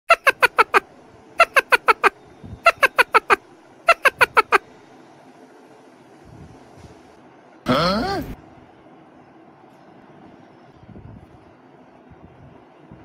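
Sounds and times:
bird-like chirping: 1.4s - 4.6s.

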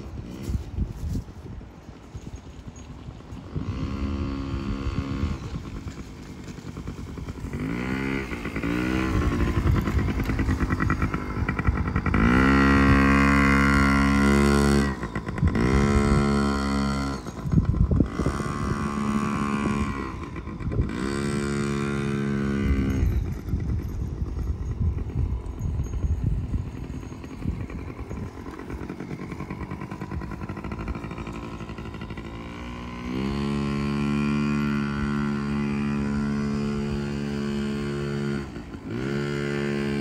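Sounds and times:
dirt bike engine revving: 3.4s - 40.0s.

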